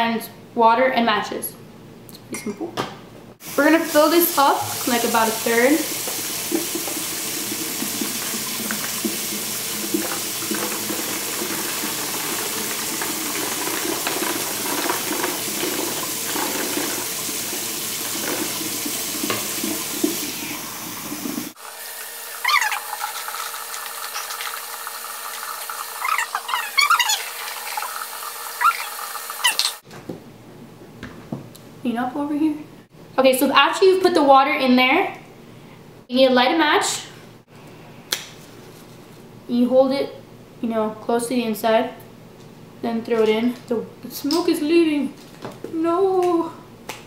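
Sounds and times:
water pouring into plastic bottle: 0:06.0 - 0:20.4
brief wavering pitched sounds: 0:22.4 - 0:22.9, 0:26.0 - 0:28.0, 0:28.6 - 0:29.8.

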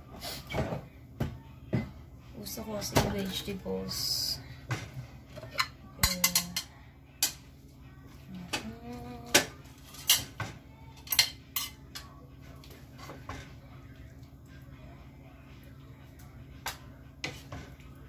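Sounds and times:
utensils clinking on plate and pan: 0:05.3 - 0:07.4, 0:09.4 - 0:10.4, 0:11.0 - 0:12.2.

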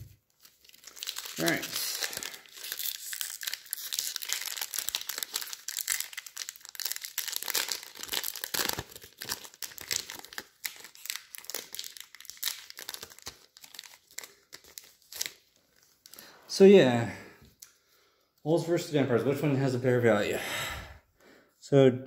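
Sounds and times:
crinkly wrapper crackling: 0:00.3 - 0:16.3.

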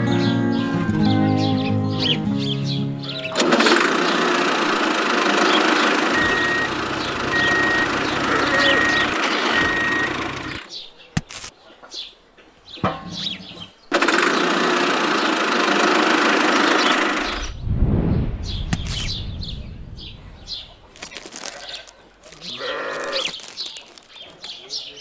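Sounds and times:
birds chirping: 0:00.0 - 0:14.0, 0:16.2 - 0:25.0
tractor engine running: 0:03.3 - 0:10.7, 0:13.9 - 0:17.6
low rumble: 0:17.2 - 0:21.4.

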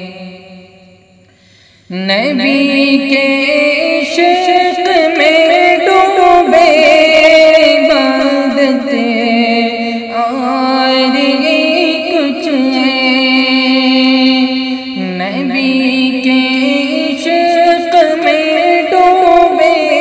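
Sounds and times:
man singing: 0:04.2 - 0:14.4.

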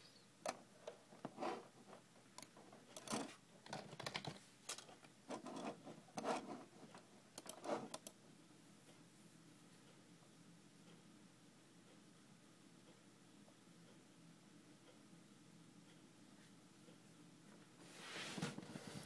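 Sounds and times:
phone handling clicks and rustles: 0:02.4 - 0:05.2.

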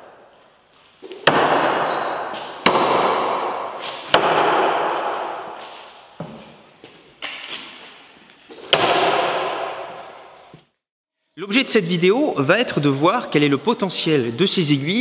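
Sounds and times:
needles striking wooden board: 0:02.4 - 0:05.4.

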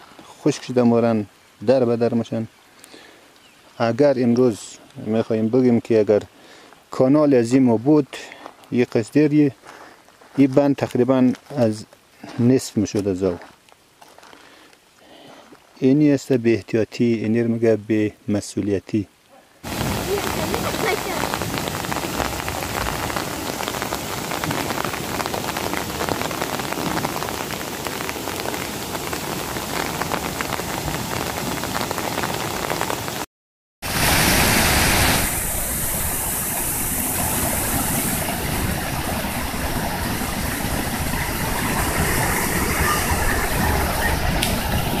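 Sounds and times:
floodwater rushing down stream: 0:19.6 - 0:45.0.

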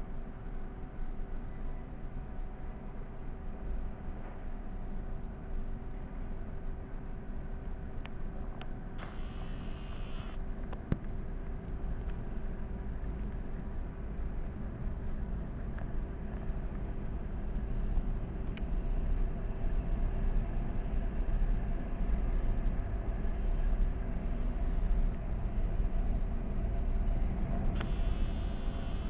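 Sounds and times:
high steady train squeal: 0:00.0 - 0:04.6
train wheels and motors rumbling: 0:00.0 - 0:29.0
click: 0:27.8 - 0:29.0.

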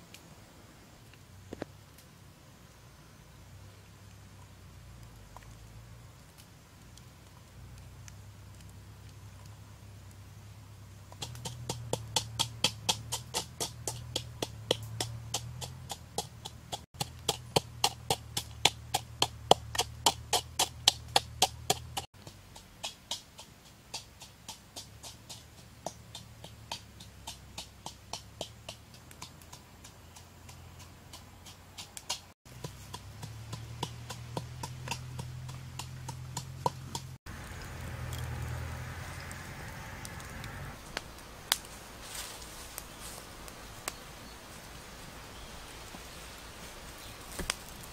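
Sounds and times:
wood fire crackling: 0:03.3 - 0:21.5, 0:31.4 - 0:47.9.

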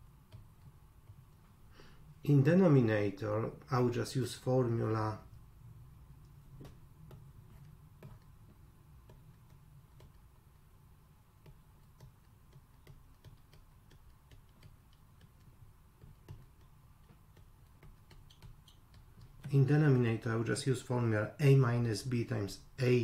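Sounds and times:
low room hum: 0:00.0 - 0:23.0
stylus tapping on tablet screen: 0:00.2 - 0:01.4, 0:06.2 - 0:10.6, 0:11.3 - 0:20.0.

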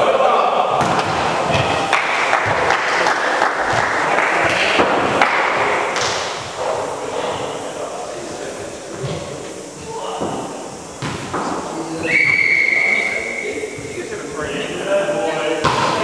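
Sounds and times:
volleyball being hit: 0:00.8 - 0:02.9, 0:03.6 - 0:06.8, 0:11.0 - 0:11.6, 0:15.6 - 0:16.0
voices calling: 0:06.6 - 0:16.0
players moving on hardwood court: 0:08.9 - 0:09.5.

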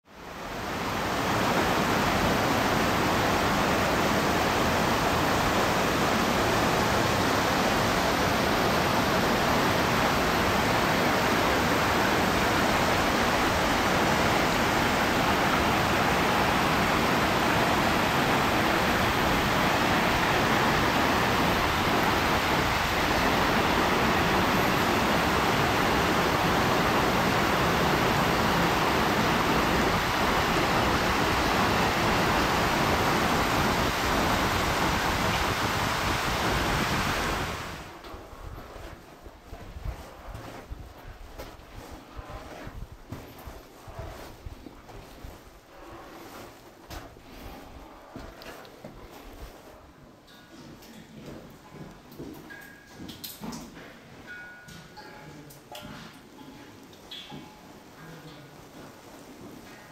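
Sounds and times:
stream running over rocks: 0:00.4 - 0:38.0.

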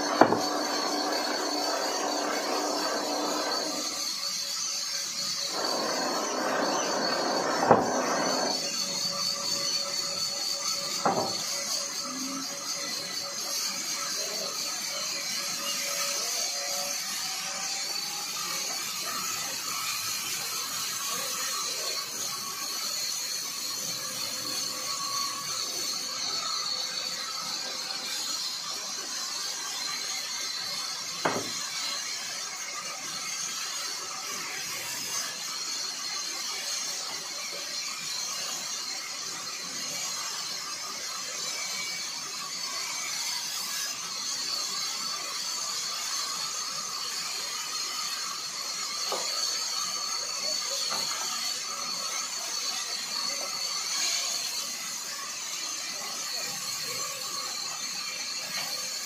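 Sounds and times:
band saw cutting log: 0:00.0 - 0:12.4, 0:15.6 - 0:37.6.

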